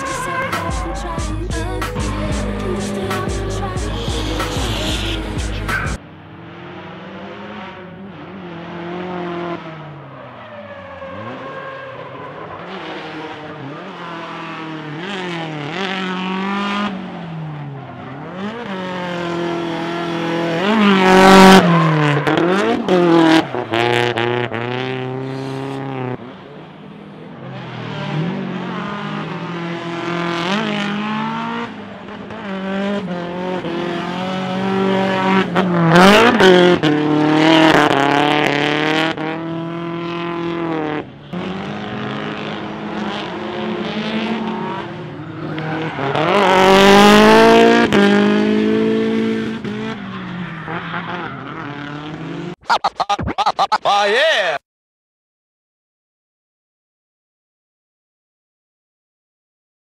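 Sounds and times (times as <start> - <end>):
tyre squeal: 0.0 - 1.2
car engine revving: 0.0 - 52.6.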